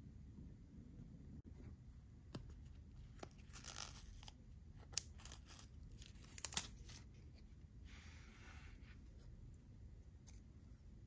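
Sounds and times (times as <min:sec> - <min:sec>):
plastic film peeling rustle: 0:03.1 - 0:07.1.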